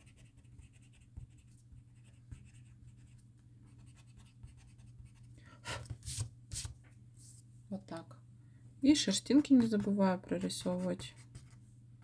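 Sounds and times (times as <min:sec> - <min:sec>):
pencil scratching on paper: 0:00.0 - 0:06.7, 0:09.3 - 0:11.6
steady low hum: 0:00.0 - 0:12.0.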